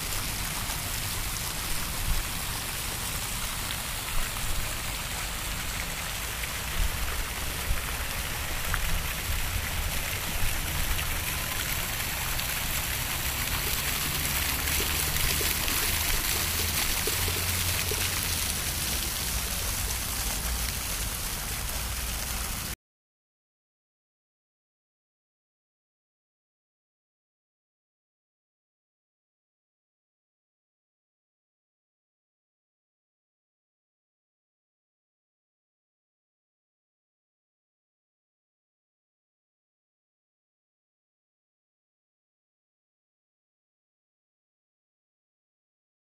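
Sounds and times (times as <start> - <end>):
fountain water splashing: 0.0 - 22.8.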